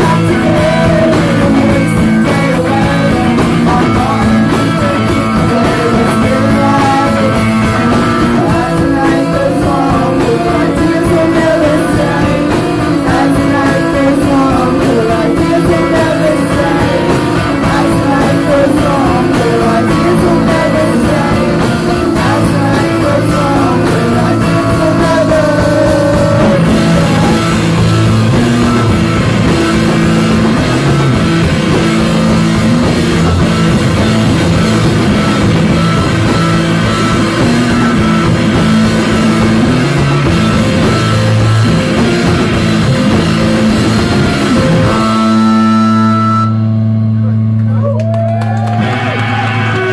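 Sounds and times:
person singing: 0.0s - 46.6s
live rock band playing: 0.0s - 49.9s.

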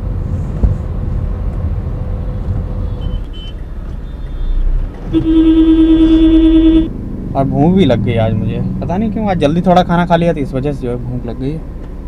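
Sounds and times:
car driving rumble: 0.0s - 12.0s
car horn blast: 3.0s - 6.9s.

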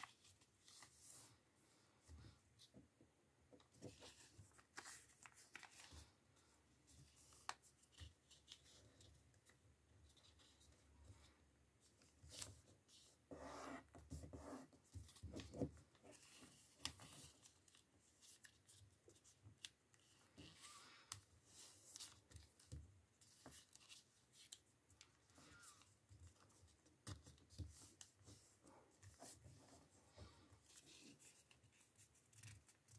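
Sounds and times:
paper rustling and crinkling: 3.6s - 6.2s, 14.8s - 32.9s.

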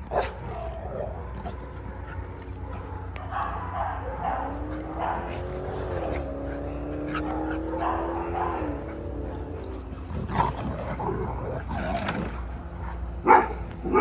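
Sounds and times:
dog barking: 2.6s - 6.4s, 7.1s - 8.9s, 13.2s - 14.0s
dogs growling: 3.8s - 13.1s.

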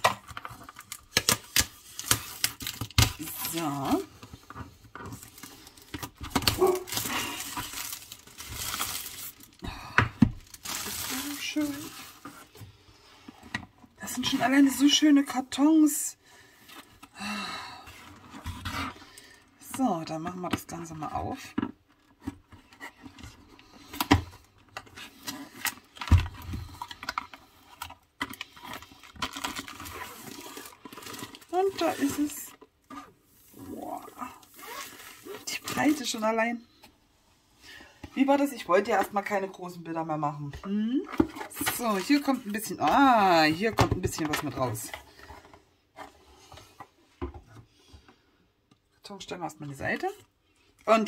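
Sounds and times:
plastic wrap crinkling: 5.0s - 9.6s, 10.3s - 12.5s, 25.2s - 36.3s.

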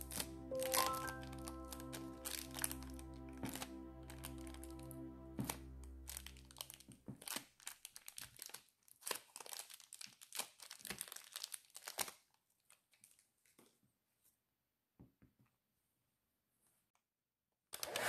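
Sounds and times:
plastic bag crinkling: 0.0s - 4.8s, 5.4s - 13.3s
background music: 0.0s - 6.9s.

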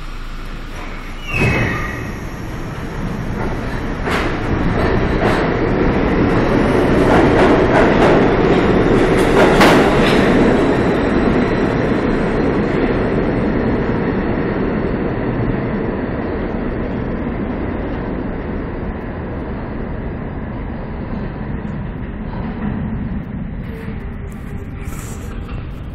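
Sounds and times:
subway train rumble: 0.0s - 25.9s
train wheels clicking over rail joints: 0.5s - 12.4s.

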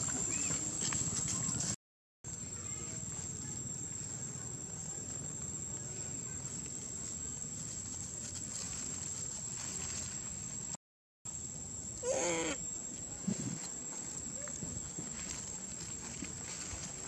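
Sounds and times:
faint rustles: 0.1s - 10.8s, 12.9s - 17.0s.

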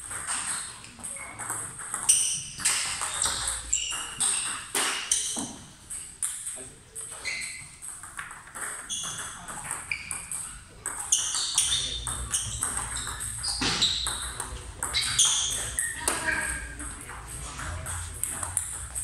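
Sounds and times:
table tennis balls clicking: 0.0s - 19.0s.

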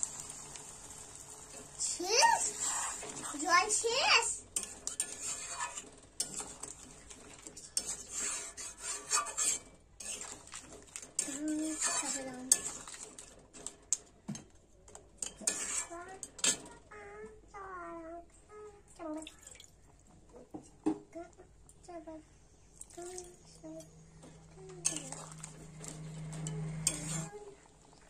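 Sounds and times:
metal spatula scraping a wok: 2.0s - 13.2s, 15.2s - 16.7s, 24.7s - 27.6s.

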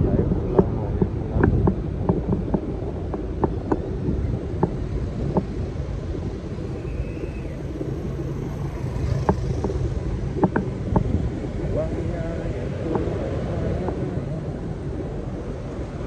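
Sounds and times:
street traffic rumble: 0.0s - 16.0s
faint high whine: 3.9s - 10.3s.

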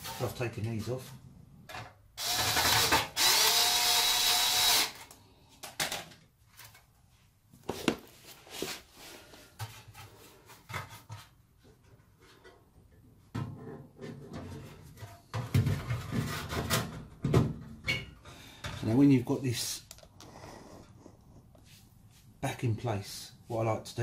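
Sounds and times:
electric screwdriver running: 2.2s - 5.1s.

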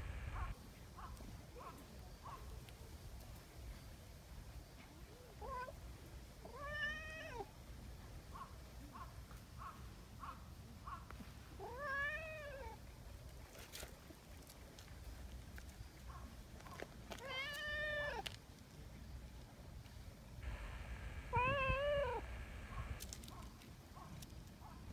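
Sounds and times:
cat meowing: 6.5s - 7.4s, 11.6s - 12.8s, 17.2s - 18.2s, 21.2s - 22.9s
cat chirping mews: 20.5s - 23.0s.

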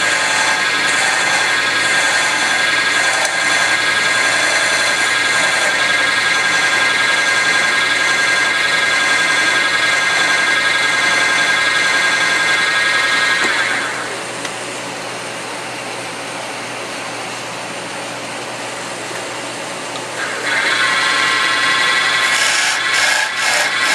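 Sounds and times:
wood lathe whining: 0.0s - 14.3s, 20.2s - 23.9s.

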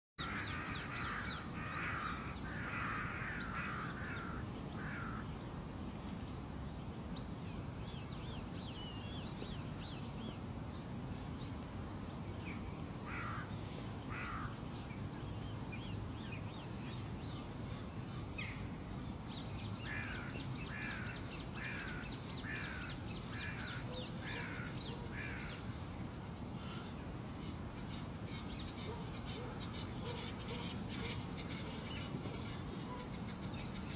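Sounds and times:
harsh bird calls: 0.2s - 5.3s
birds chirping: 0.2s - 33.9s
low background noise: 0.2s - 33.9s.

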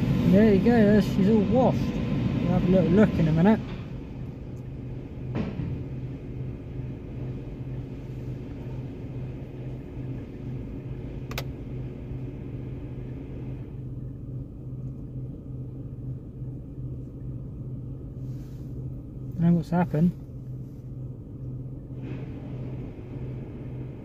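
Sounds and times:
car wash machinery hum: 0.0s - 24.0s
short clicks: 11.3s - 11.5s.

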